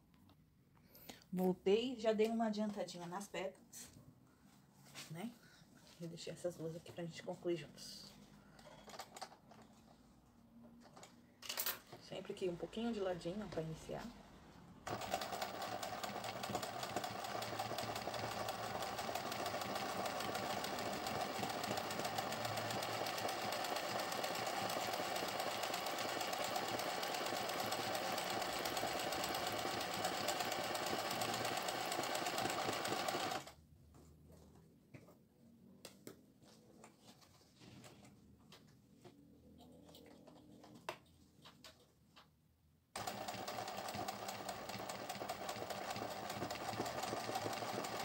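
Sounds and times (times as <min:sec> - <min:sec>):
sewing machine running: 0:14.9 - 0:33.5, 0:43.0 - 0:48.0.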